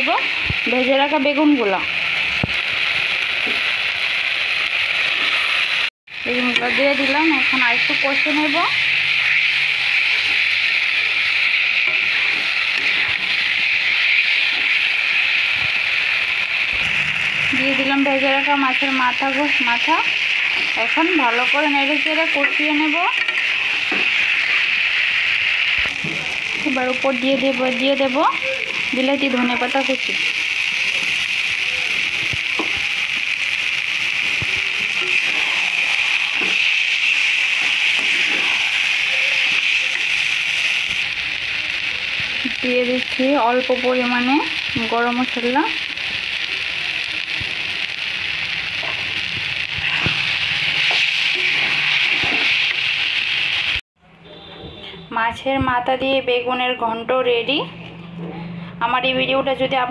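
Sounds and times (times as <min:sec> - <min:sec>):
vegetables sizzling in hot oil: 0:00.0 - 0:53.8
spatula stirring in pan: 0:08.0 - 0:16.2, 0:28.7 - 0:42.3, 0:48.6 - 0:53.6.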